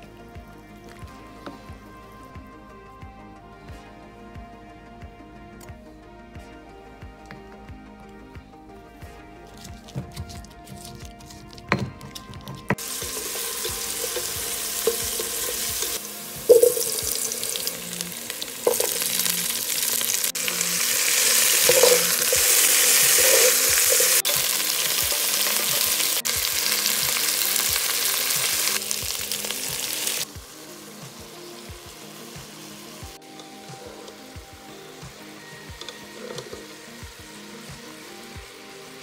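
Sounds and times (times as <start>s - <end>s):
spatula scraping metal pot: 10.6s - 17.8s, 18.6s - 26.1s
stone pestle knocking in mortar: 11.7s - 12.9s
vegetables sizzling in hot oil: 12.6s - 39.0s.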